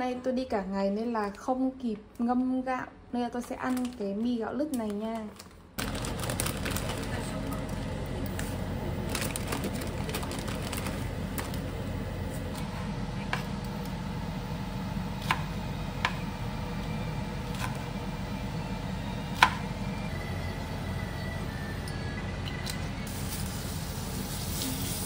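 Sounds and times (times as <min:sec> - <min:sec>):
steady low hum: 0:05.7 - 0:24.8
knife chopping on plastic board: 0:19.4 - 0:19.6.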